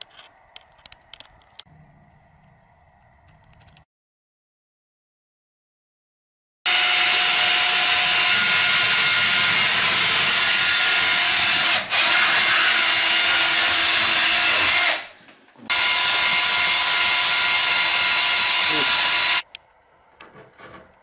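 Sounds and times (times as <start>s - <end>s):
cordless drill whining: 6.7s - 15.1s, 15.7s - 19.4s.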